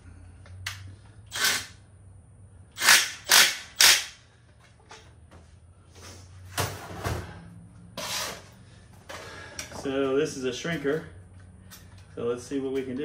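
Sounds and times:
ratchet wrench ratcheting: 0.7 - 1.8, 2.7 - 4.2.

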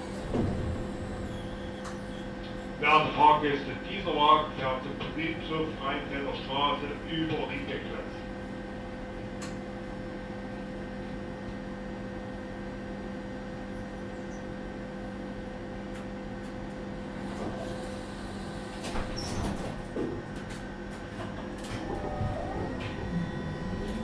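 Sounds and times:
tram electrical hum: 0.0 - 24.0.

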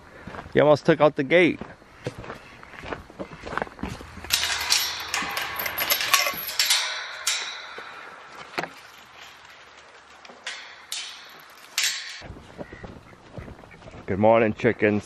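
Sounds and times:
metal gate clattering: 4.0 - 12.3
gate knocks: 4.2 - 9.4, 10.3 - 12.3.

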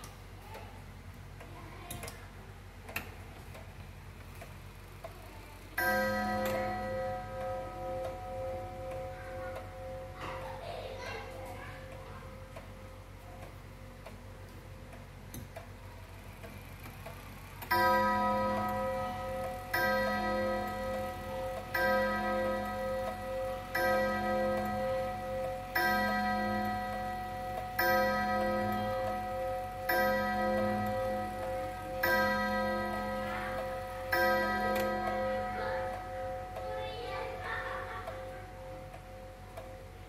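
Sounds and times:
clock gong strikes: 5.8 - 13.5, 17.6 - 40.0
clock ticking: 5.8 - 40.0.

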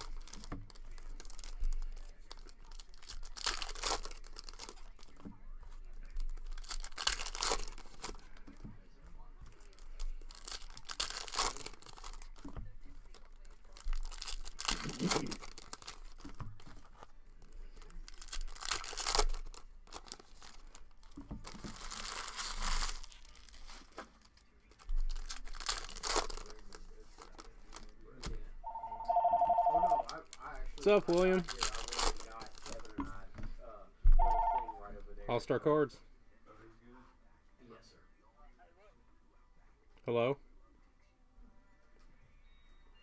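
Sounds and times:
foil wrappers tearing and crinkling: 0.0 - 8.5, 9.5 - 28.4, 30.0 - 33.0
telephone ringing: 28.6 - 30.1, 34.2 - 34.8.

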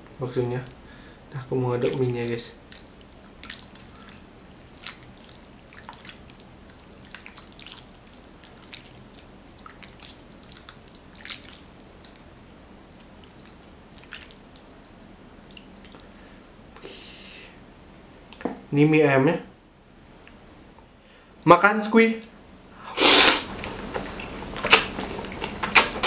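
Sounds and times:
wet squelches of stirring noodles: 1.8 - 16.2.

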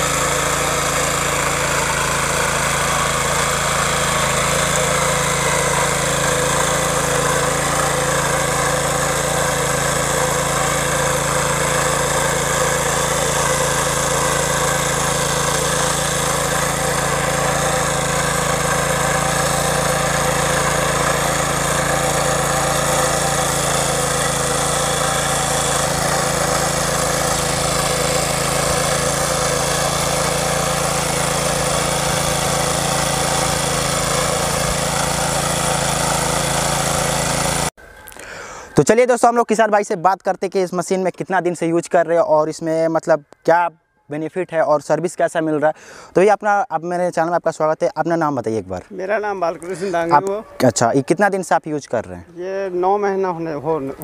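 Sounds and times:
small engine running steadily: 0.0 - 38.7.

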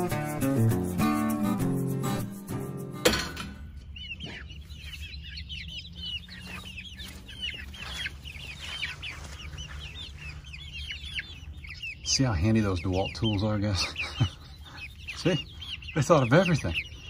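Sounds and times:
acoustic guitar music: 0.0 - 3.2
chicks peeping and chirping: 0.0 - 17.0.

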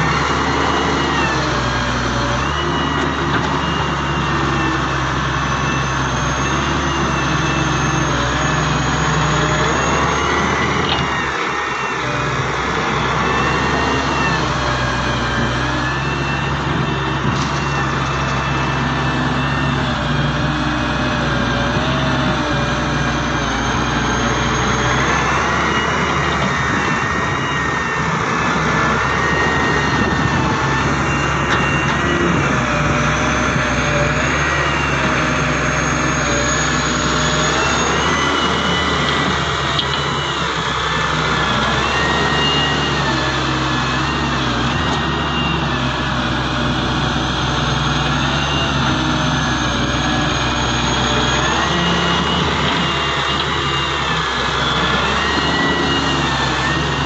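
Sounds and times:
diesel excavator engine running: 0.0 - 57.0
high hydraulic whine: 0.0 - 57.0.

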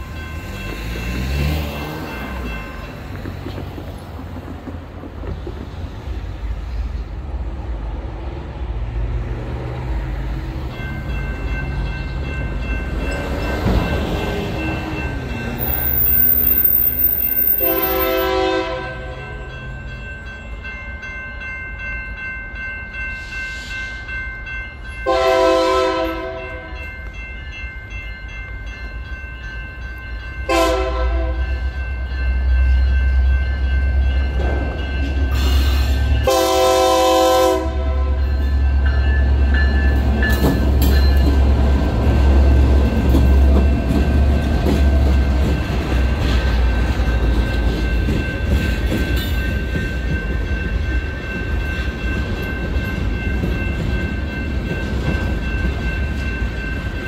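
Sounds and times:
locomotive rumble: 0.0 - 20.6
crossing warning bell: 0.0 - 57.0
locomotive horn: 17.4 - 19.2, 25.0 - 26.8, 30.5 - 31.5, 35.4 - 38.3.

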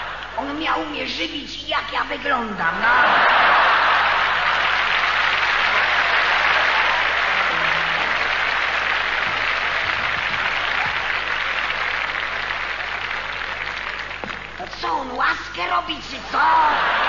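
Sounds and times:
audience applauding: 3.1 - 15.2.

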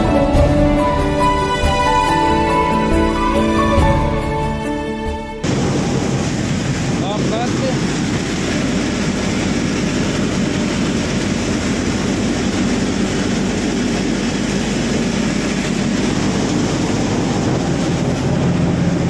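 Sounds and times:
threshing machine droning: 5.4 - 19.0.

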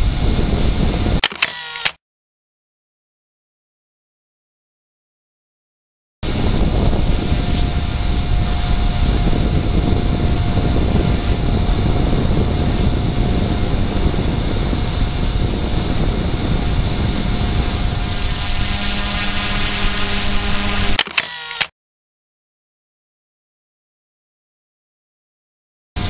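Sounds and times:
helicopter motor high whine: 0.0 - 1.2, 6.2 - 21.6
rotor wash rumble: 0.0 - 1.2, 6.2 - 21.0.

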